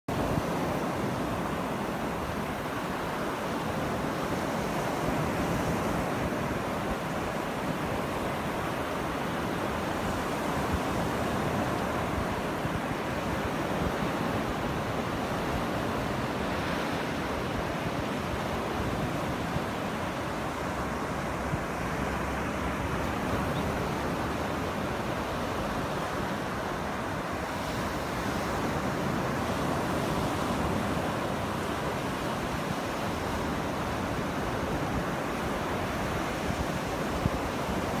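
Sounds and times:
wind buffeting the microphone: 0.1 - 38.0.

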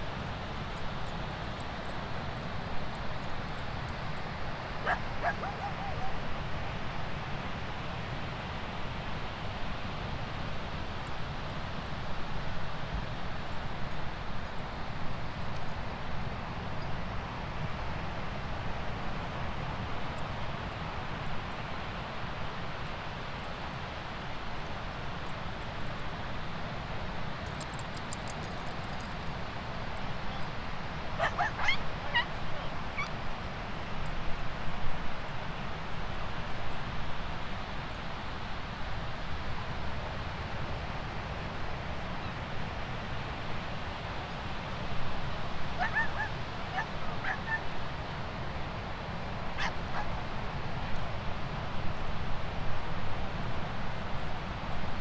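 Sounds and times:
dog barking: 4.8 - 6.2, 31.2 - 32.3, 45.8 - 47.6, 49.6 - 50.1.

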